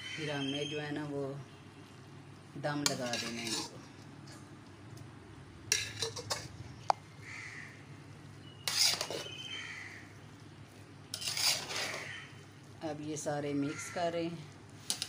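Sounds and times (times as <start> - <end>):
metal spoon scraping pot: 2.8 - 4.4, 5.7 - 6.6, 8.6 - 9.4, 11.1 - 12.3.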